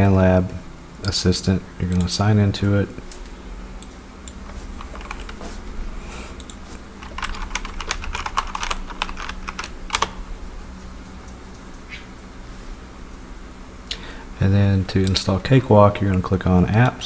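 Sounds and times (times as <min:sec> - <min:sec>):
faint low hum: 0:00.0 - 0:17.0
keyboard typing: 0:03.8 - 0:05.6, 0:06.4 - 0:10.2.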